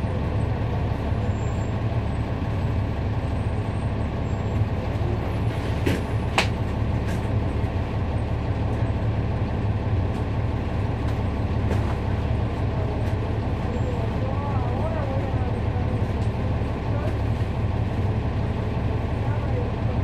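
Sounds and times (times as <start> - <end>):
diesel bus engine droning: 0.0 - 20.0.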